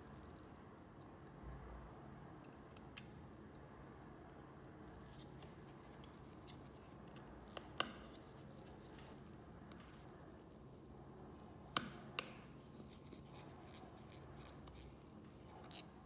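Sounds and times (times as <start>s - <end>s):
faint low hum: 0.0s - 16.0s.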